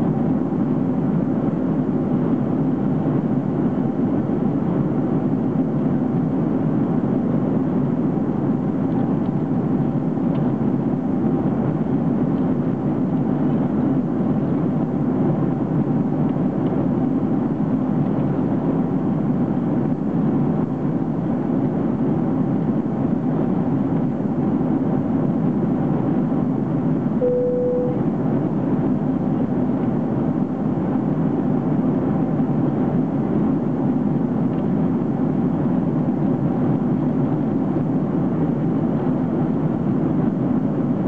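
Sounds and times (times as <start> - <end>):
airliner cabin roar: 27.0 - 28.5
single tone: 27.2 - 28.2.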